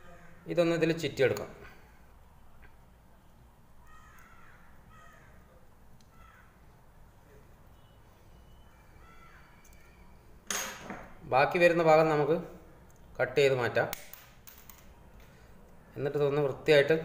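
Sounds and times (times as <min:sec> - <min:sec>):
crows cawing: 0:00.0 - 0:00.4, 0:03.8 - 0:05.5, 0:06.1 - 0:06.6, 0:08.8 - 0:09.9.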